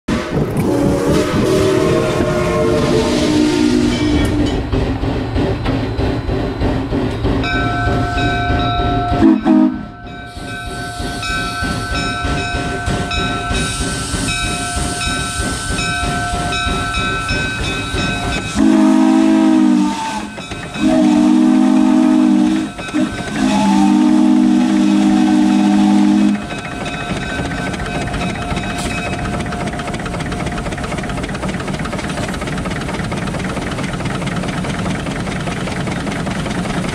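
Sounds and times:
steam whistle blasts: 0.1 - 4.6, 9.1 - 11.4, 18.4 - 26.5
steam engine hissing and running: 0.1 - 36.9.

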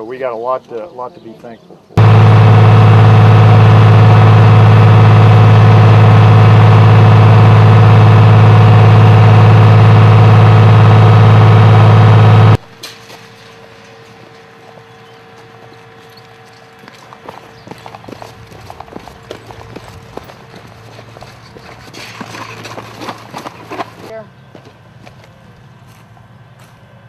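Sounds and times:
military vehicle engine drone: 2.0 - 12.6.

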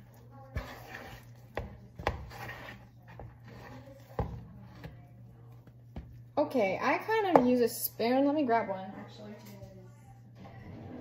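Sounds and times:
dough squelching and scraping: 0.0 - 7.4.

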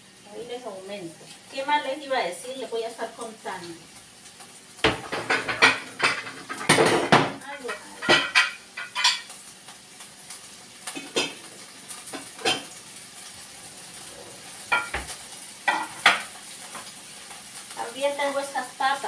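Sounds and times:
glass dishes clinking: 4.9 - 9.3.

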